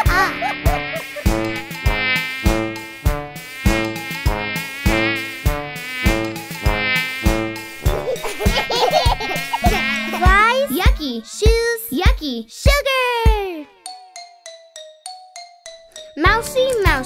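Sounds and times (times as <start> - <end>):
instrumental backing track: 0.0 - 11.7, 13.2 - 17.0
cartoon fly buzzing: 0.0 - 12.2.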